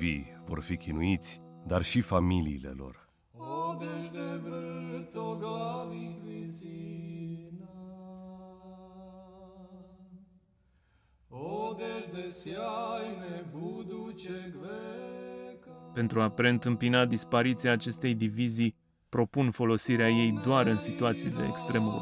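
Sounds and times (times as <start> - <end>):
unaccompanied vocal chant: 3.4 - 10.2, 11.3 - 18.7, 19.6 - 22.0.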